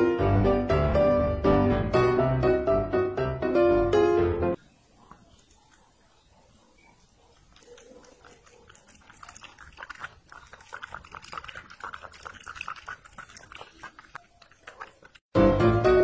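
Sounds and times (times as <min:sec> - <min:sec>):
kitten licking glass: 0:07.4 - 0:15.2.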